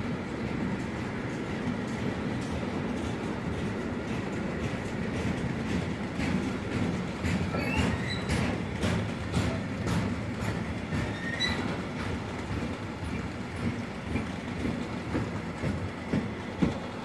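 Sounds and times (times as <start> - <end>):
freight wagons rumbling on rails: 0.0 - 17.0
wheels clicking over rail joints: 0.0 - 17.0
faint wheel squeal: 7.5 - 8.3, 11.1 - 11.7.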